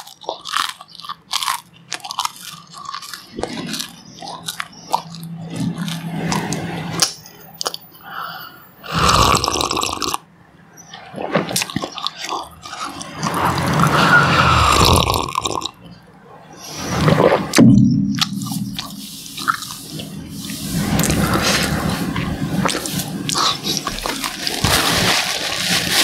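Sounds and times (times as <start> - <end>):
mouth clicks and swallows: 2.3 - 8.2, 11.0 - 16.0, 18.2 - 24.6
slurping tea: 8.8 - 10.2, 11.0 - 15.8, 16.6 - 17.6.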